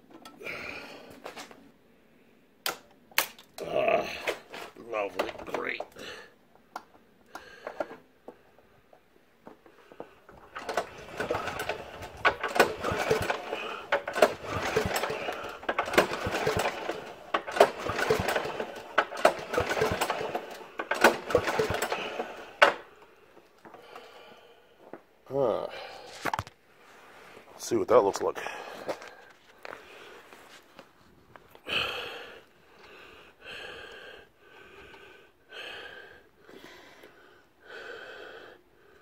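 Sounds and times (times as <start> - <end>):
engine cranking whir: 10.3 - 23.0.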